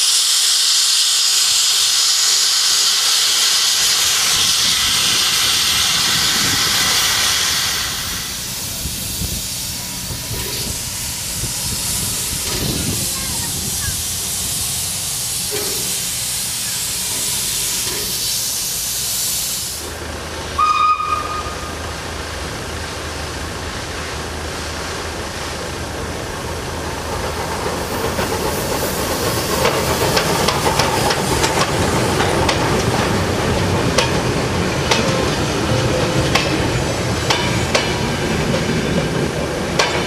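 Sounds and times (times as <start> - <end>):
steam locomotive hissing: 0.0 - 40.0
train passing: 0.0 - 40.0
wheels clicking on track: 8.6 - 19.1, 25.6 - 40.0
steam whistle blast: 20.6 - 21.8.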